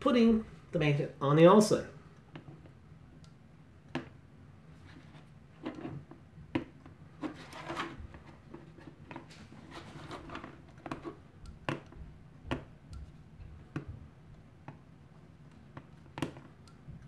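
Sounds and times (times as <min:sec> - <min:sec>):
plastic handling and rubbing: 0:04.7 - 0:11.2.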